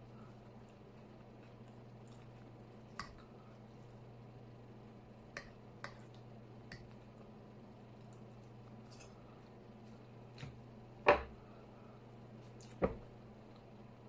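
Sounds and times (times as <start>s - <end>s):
low steady hum: 0.0s - 14.0s
chewing and mouth sounds: 0.2s - 4.1s.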